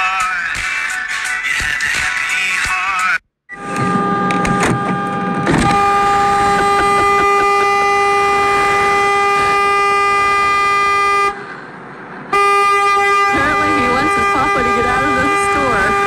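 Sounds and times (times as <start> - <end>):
car horn blast: 3.6 - 11.5, 12.3 - 16.0.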